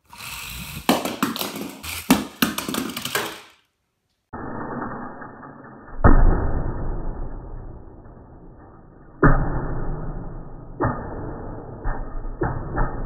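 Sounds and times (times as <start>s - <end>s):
toy car knocking and rolling: 0.0s - 3.6s.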